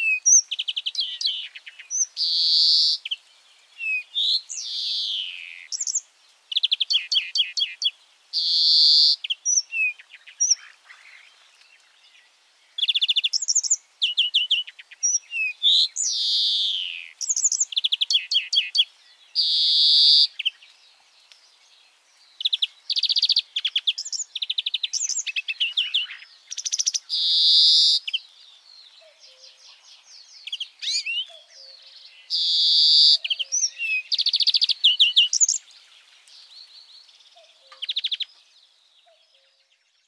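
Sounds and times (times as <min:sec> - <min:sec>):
finch twittering trills: 0:22.2 - 0:39.9.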